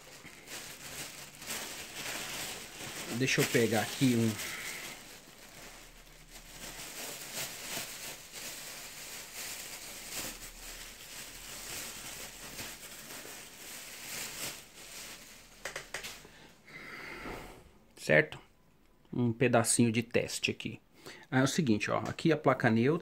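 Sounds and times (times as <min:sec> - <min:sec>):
faint rustling and handling: 0:00.0 - 0:16.2.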